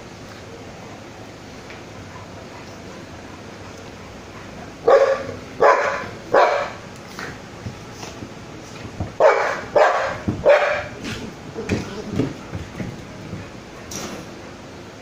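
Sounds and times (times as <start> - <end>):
dogs barking: 1.8 - 8.2, 9.0 - 12.6.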